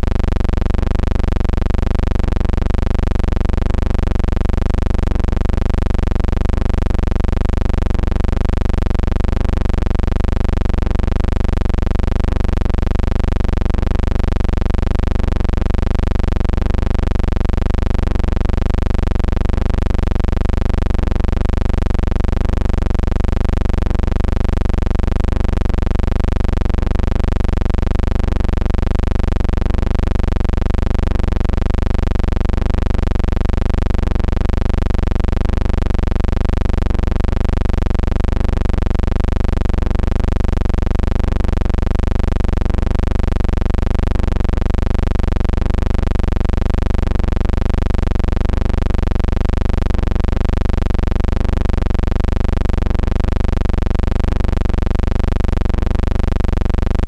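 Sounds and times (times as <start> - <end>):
low hum with hiss: 0.0 - 4.2.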